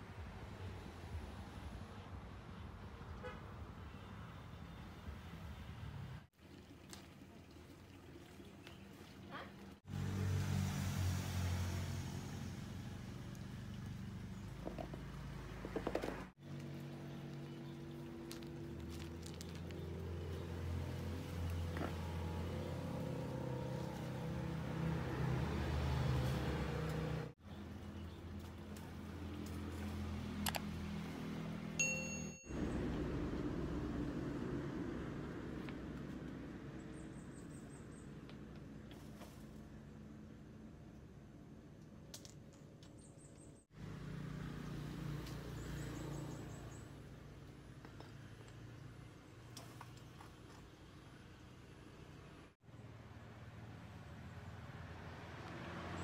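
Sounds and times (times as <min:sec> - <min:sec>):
vehicle engine humming: 0:09.8 - 0:41.6.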